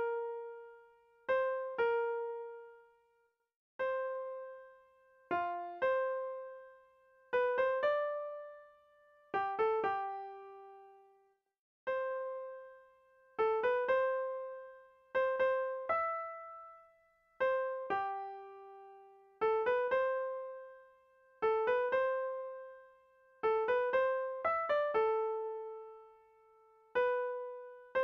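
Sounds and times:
slow piano melody: 3.8 - 11.0, 17.4 - 23.0, 23.6 - 28.0.

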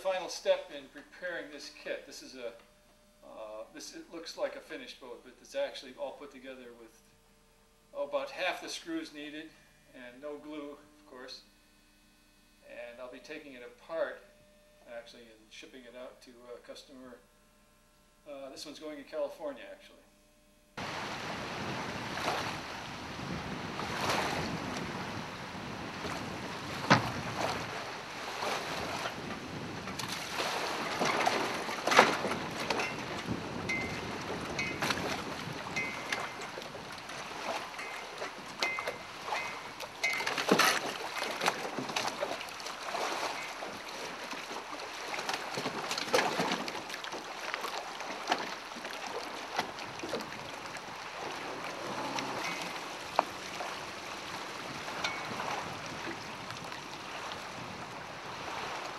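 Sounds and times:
wind buffeting microphone: 20.8 - 40.2, 49.7 - 58.9
water splashing and lapping: 20.8 - 58.9.

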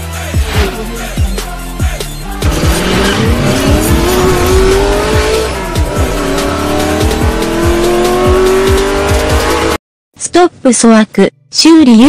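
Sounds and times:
music with bass-drum beat: 0.0 - 9.8
racing car engine revving: 2.3 - 9.8.

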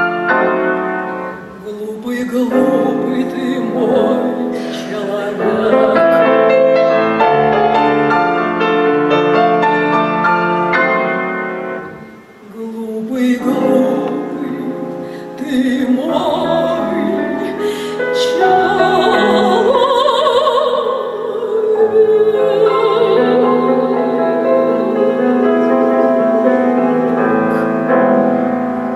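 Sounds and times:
grand piano accompaniment: 0.0 - 28.9
woman singing operatically: 1.6 - 7.5, 12.4 - 26.7.

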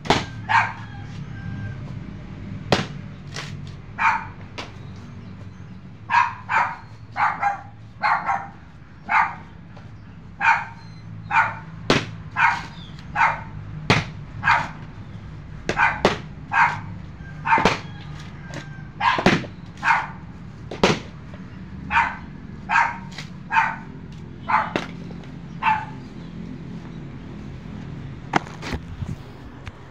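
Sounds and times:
machete hacking coconut husks: 0.0 - 0.8, 2.6 - 3.8, 11.8 - 13.1, 13.8 - 14.9, 15.6 - 16.9, 17.5 - 20.0, 20.6 - 21.5, 23.0 - 23.5, 24.1 - 25.3
dog barking: 0.4 - 0.9, 4.0 - 4.4, 6.1 - 9.6, 10.4 - 13.6, 14.4 - 14.8, 15.7 - 18.0, 18.7 - 20.3, 21.9 - 26.1.

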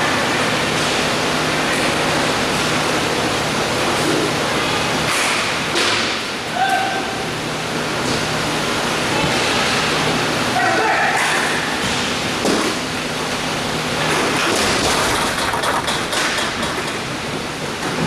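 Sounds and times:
faint distant shouts: 6.5 - 7.2.

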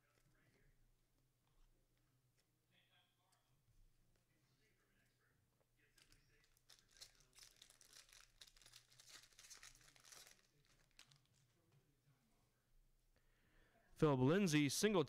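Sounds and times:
wrapper crinkling and tearing: 6.0 - 11.4.

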